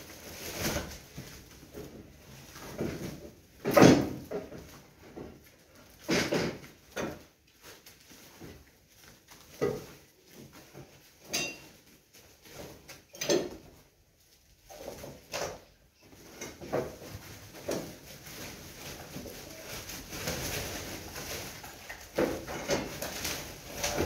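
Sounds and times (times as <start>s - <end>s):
rubble scraping and clattering: 14.5s - 24.0s.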